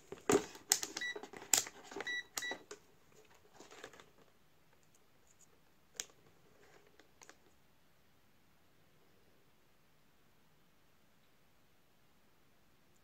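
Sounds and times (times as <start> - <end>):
multimeter beeping: 2.0 - 2.6.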